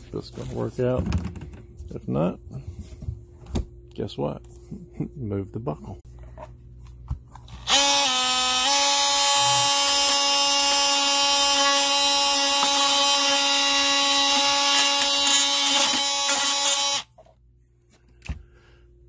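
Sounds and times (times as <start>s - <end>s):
oscillating multi-tool buzzing whine: 7.6s - 17.1s.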